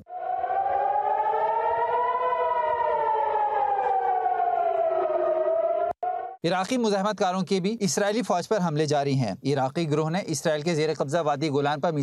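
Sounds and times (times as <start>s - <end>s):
air-raid siren wailing: 0.0s - 6.4s.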